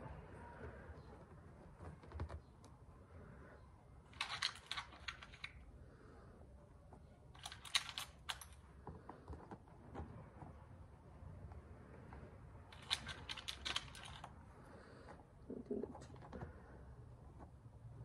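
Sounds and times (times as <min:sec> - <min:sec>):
tiles clicking and clattering: 0:04.1 - 0:05.7, 0:07.4 - 0:10.1, 0:12.1 - 0:14.4.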